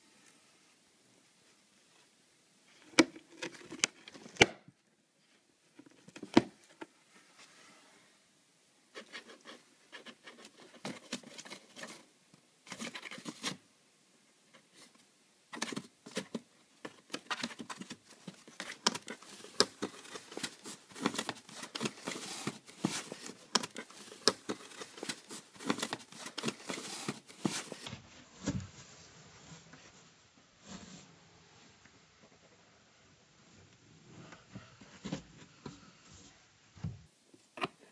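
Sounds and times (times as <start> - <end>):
claws scratching on cardboard: 9.0 - 12.1, 15.6 - 27.9.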